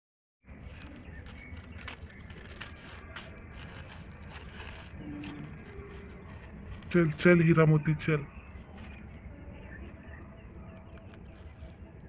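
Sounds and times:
toy cart jingling and rattling: 0.6 - 8.0.

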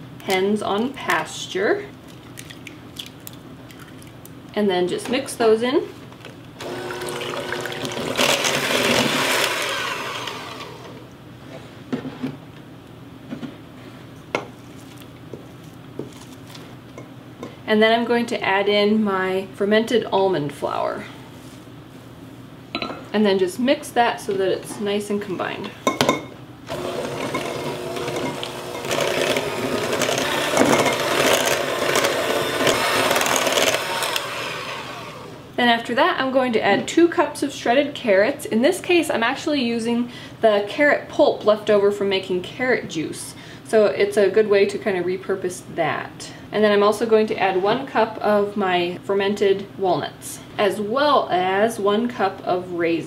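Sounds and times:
electric hand mixer whirring: 6.6 - 11.0, 26.7 - 35.6.

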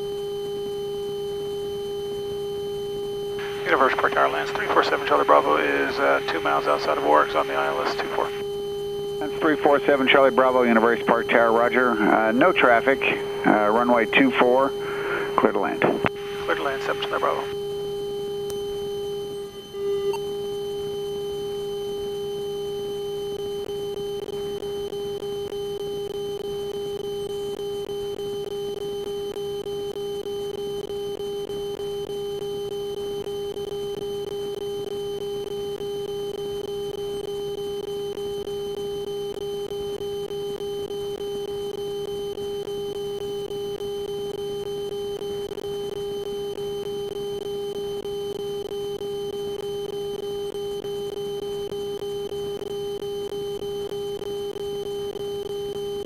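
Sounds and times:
aircraft cockpit drone: 0.0 - 56.0
constant tone: 0.0 - 56.0.

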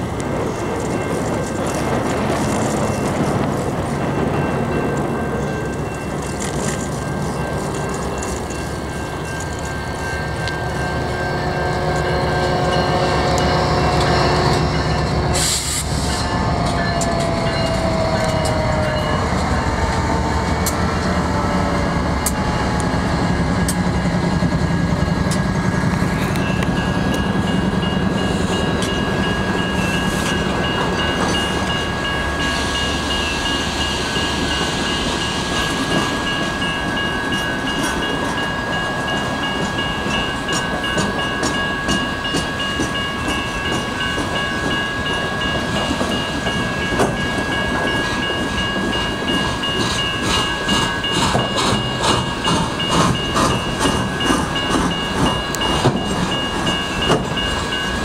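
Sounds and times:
locomotive engines rumbling: 0.0 - 58.0
railroad crossing bells ringing: 0.0 - 58.0
train horn: 10.4 - 20.8.

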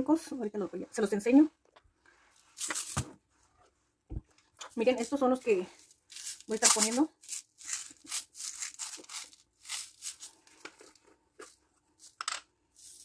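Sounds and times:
sprinkles rattling in plastic container: 5.8 - 10.4, 12.8 - 13.0.

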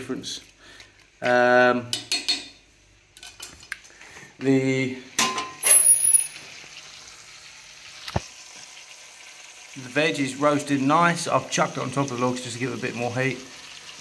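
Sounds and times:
sauce sizzling in a pot: 5.9 - 14.0.

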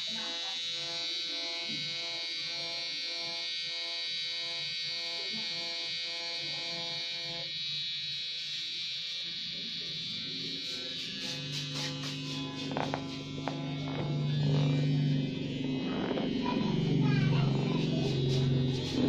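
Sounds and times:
tattoo pen buzzing: 0.0 - 19.0
faint low tones: 12.3 - 19.0.

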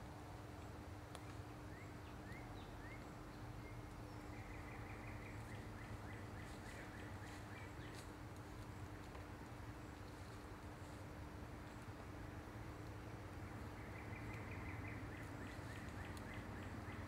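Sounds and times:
steady low hum: 0.0 - 17.0
bird chirping: 1.7 - 8.1, 13.0 - 17.0.

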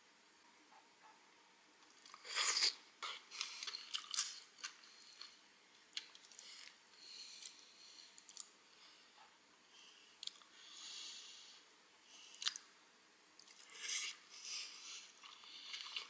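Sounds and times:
chewing and crunching chicken: 1.9 - 6.8, 15.2 - 16.0.

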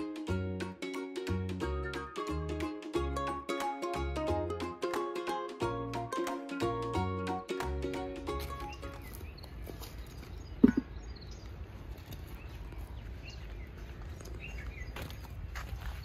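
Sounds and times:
birds chirping: 8.4 - 16.0
bricks knocking on ground: 10.6 - 11.0.

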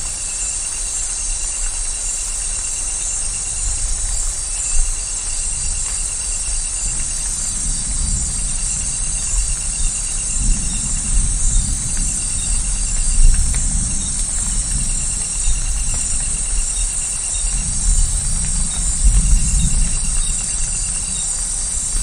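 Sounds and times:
insect trill: 0.0 - 22.0
steady rain: 0.0 - 22.0
thunder rumbling: 6.7 - 22.0.

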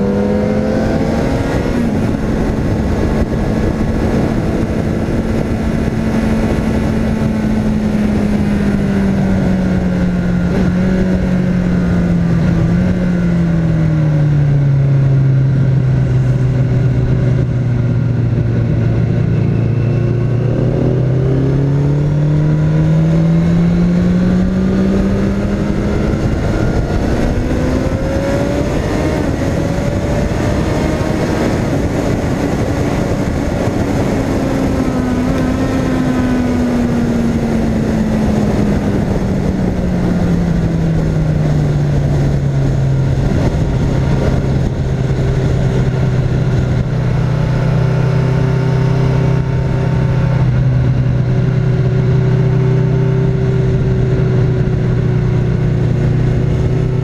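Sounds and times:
motorcycle engine: 0.0 - 57.0
wind rush: 0.0 - 57.0.

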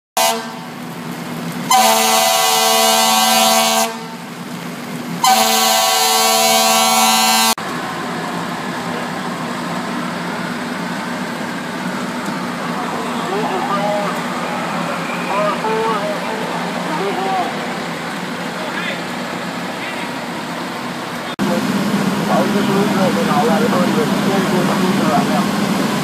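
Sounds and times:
fire engine air horn blasts: 0.2 - 0.9, 1.7 - 4.3, 5.2 - 7.6
fire engine idling rumble: 0.2 - 26.0
street noise: 0.2 - 26.0.

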